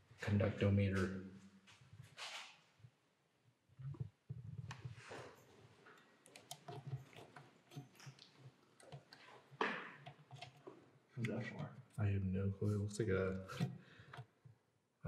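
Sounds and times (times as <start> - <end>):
faint clicks and taps: 3.8 - 12.0.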